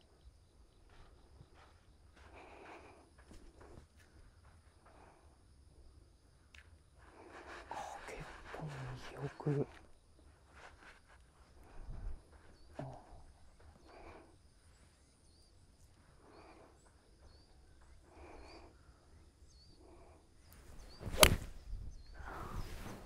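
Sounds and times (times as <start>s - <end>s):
faint high chirping: 5.9s - 23.0s
golf club striking ball: 21.1s - 21.5s.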